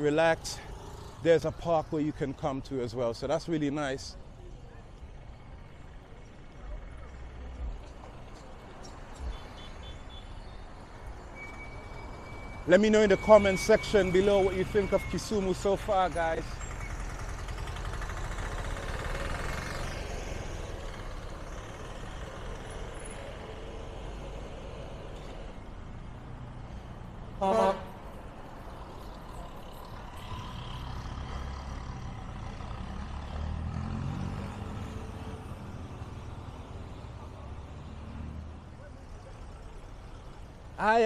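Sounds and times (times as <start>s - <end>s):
vehicles passing: 0.0s - 41.0s
vehicle horn toot: 9.3s - 10.5s, 27.4s - 28.0s.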